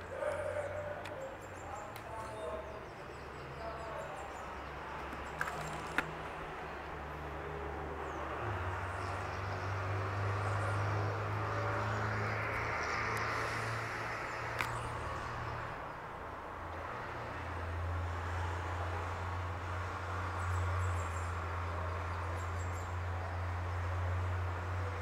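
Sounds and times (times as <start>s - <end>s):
road traffic passing: 0.0s - 25.0s
sharp clicks: 14.5s - 14.9s.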